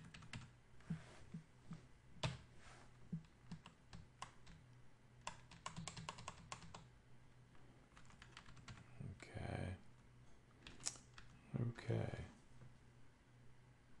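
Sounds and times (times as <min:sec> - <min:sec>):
faint keyboard typing: 0:00.0 - 0:02.5, 0:03.1 - 0:06.9, 0:07.9 - 0:08.9, 0:10.6 - 0:11.4.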